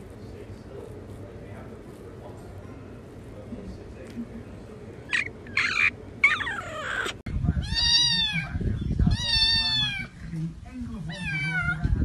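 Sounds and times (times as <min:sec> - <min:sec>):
cat meowing: 0:05.2 - 0:10.1, 0:11.1 - 0:12.0.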